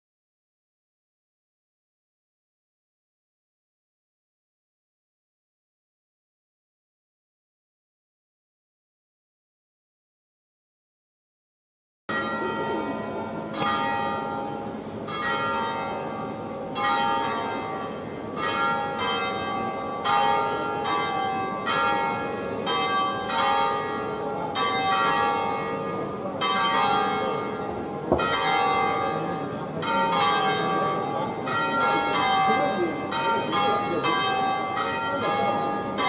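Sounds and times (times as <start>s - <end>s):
church bells pealing: 12.1s - 36.0s.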